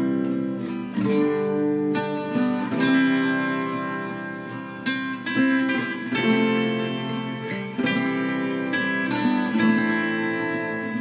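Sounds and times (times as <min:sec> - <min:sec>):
acoustic guitar chords: 0:00.0 - 0:11.0.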